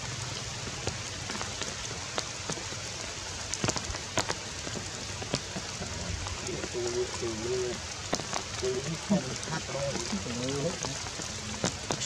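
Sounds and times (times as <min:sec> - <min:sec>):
rain on leaves: 0:00.0 - 0:12.0.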